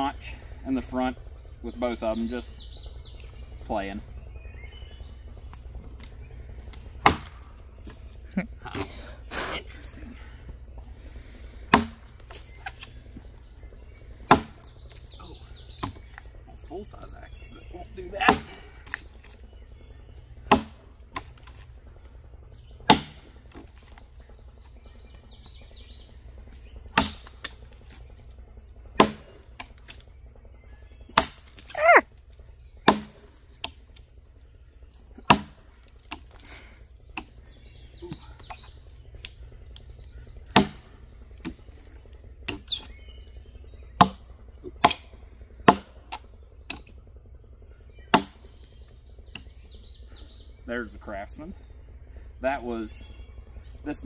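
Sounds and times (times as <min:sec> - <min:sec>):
axe chopping wood: 0:07.0 - 0:08.0, 0:11.7 - 0:12.9, 0:14.2 - 0:14.7, 0:15.8 - 0:16.2, 0:18.2 - 0:19.1, 0:20.5 - 0:21.6, 0:22.8 - 0:23.8, 0:26.9 - 0:28.0, 0:29.0 - 0:30.0, 0:31.1 - 0:32.0, 0:32.8 - 0:33.8, 0:35.2 - 0:36.4, 0:37.2 - 0:37.4, 0:40.5 - 0:41.6, 0:42.5 - 0:42.9, 0:44.0 - 0:46.9, 0:48.1 - 0:48.4.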